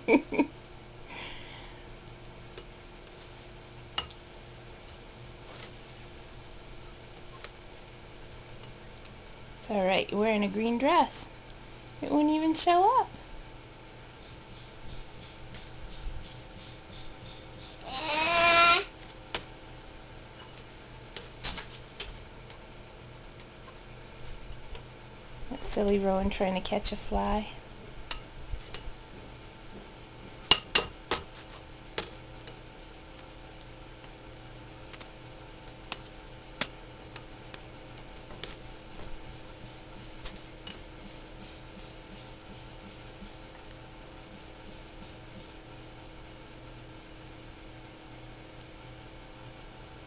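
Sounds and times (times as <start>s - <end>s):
fork clicking against ceramic bowl: 34.9s - 35.1s.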